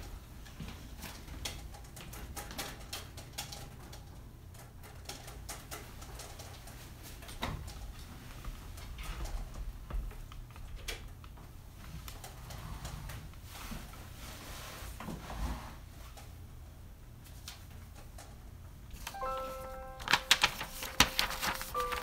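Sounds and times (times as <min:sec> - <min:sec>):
low steady hum: 0:06.7 - 0:22.0.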